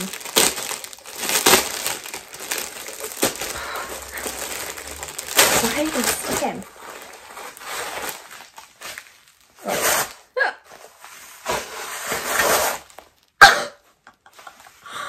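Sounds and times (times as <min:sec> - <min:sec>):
leggings rustling and crinkling: 0:00.0 - 0:13.4.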